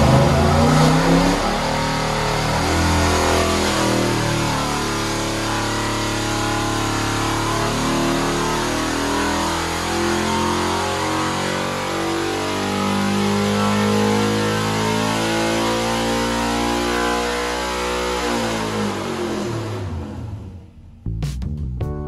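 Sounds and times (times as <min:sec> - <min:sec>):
engine running on a dynamometer: 0:00.0 - 0:20.8.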